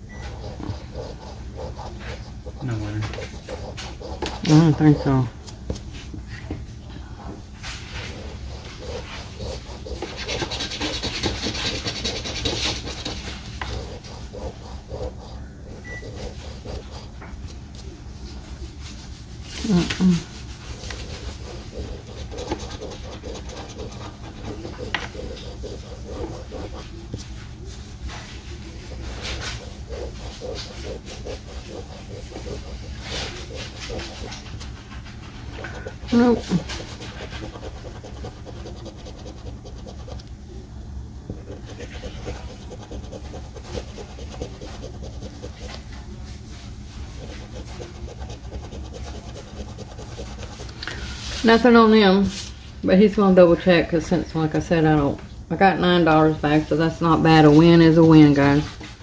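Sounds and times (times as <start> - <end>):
steady low hum: 0.0 - 59.0
coin scratching lottery ticket: 0.2 - 5.3, 8.0 - 17.0, 20.8 - 26.9, 28.8 - 34.6, 35.7 - 40.2, 41.5 - 45.8, 47.2 - 50.6.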